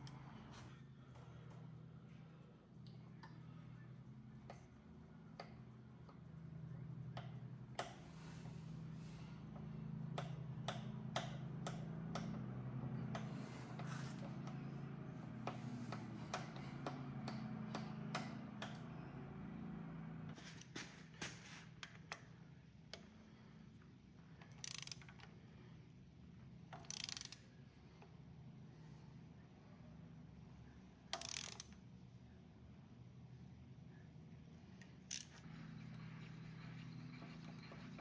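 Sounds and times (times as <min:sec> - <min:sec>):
milling machine motor hum: 0:07.8 - 0:20.4
ratchet wrench clicking: 0:24.4 - 0:25.3, 0:26.7 - 0:27.5, 0:31.1 - 0:31.8, 0:35.0 - 0:35.5.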